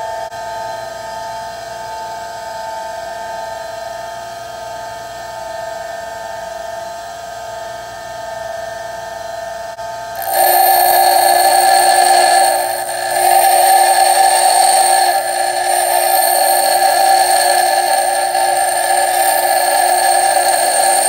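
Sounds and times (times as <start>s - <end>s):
bench grinder humming: 10.2s - 21.0s
harsh grinding of drill bit: 10.2s - 21.0s.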